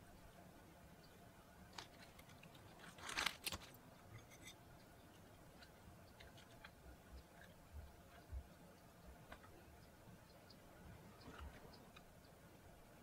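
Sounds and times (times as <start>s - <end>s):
lettuce leaves rustling: 1.7s - 3.8s.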